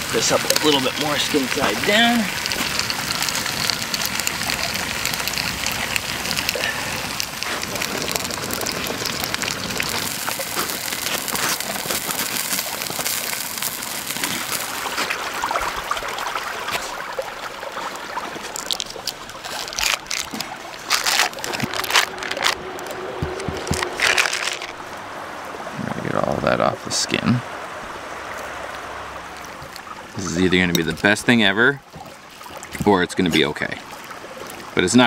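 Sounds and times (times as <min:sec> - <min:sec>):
fish sizzling in a pan: 0:00.0 - 0:15.8.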